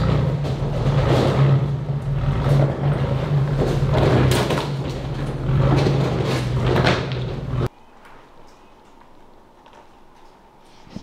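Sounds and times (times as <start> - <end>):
vehicle engine drone: 0.0 - 7.8.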